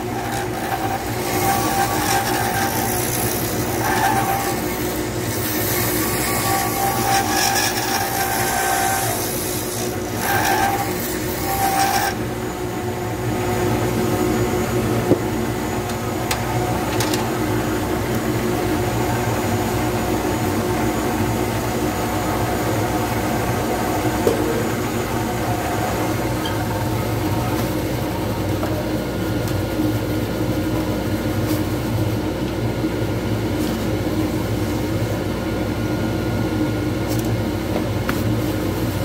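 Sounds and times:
lathe tool scraping wood: 0.0 - 12.3
lathe motor hum: 0.0 - 28.4.

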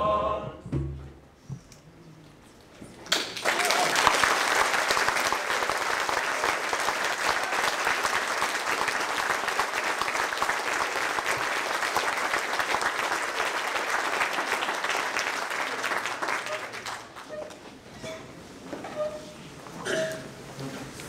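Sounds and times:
audience applauding: 3.0 - 17.4.

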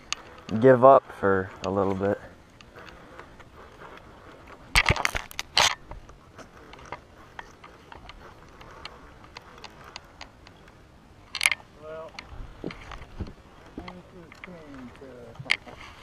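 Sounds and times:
fishing reel clicking: 0.0 - 0.6, 6.5 - 12.3.

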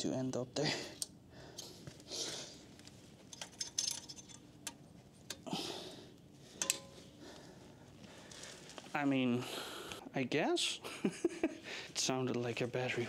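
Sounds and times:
metal parts clinking: 3.3 - 5.4, 6.6 - 7.0.

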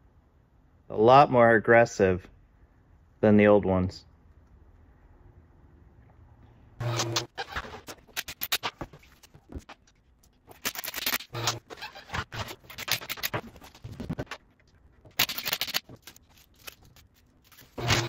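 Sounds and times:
tools scraping and clicking: 6.8 - 18.0.

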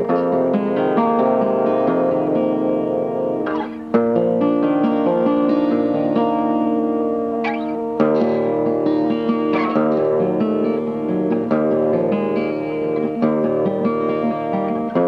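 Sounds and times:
acoustic guitar chords: 0.0 - 15.0.

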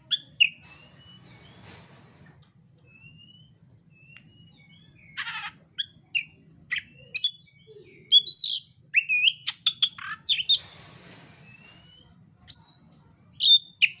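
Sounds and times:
bird singing whistled notes: 2.9 - 5.2.

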